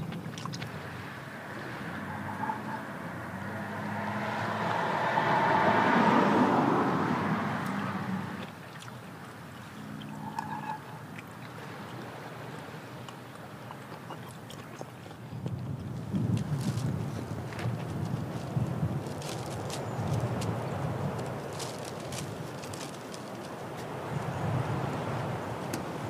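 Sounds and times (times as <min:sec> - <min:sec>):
vehicle passing by: 0:00.7 - 0:08.5.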